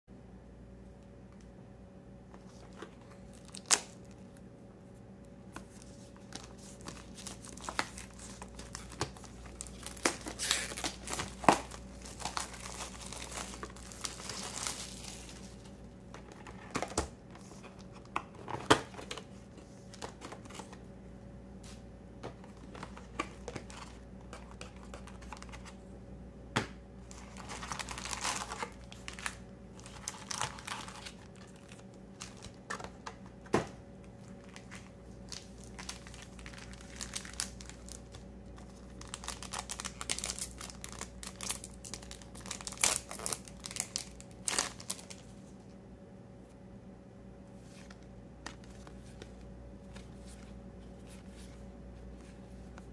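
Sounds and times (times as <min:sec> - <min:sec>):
plastic wrap crinkling and tearing: 0:02.5 - 0:04.4, 0:05.6 - 0:16.9, 0:27.0 - 0:33.0, 0:34.2 - 0:45.3.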